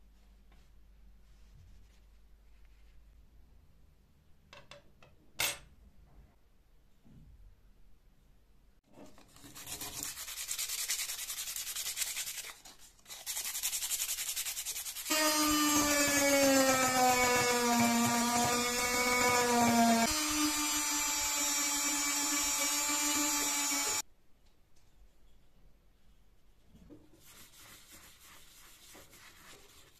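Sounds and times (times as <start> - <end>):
rotary tool sanding wood: 13.1 - 24.0
motor whine: 18.5 - 24.0.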